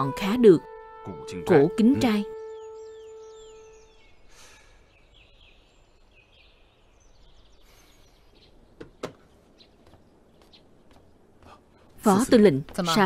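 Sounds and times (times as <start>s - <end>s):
small birds chirping: 1.2s - 13.0s
sharp knocks: 8.8s - 9.3s.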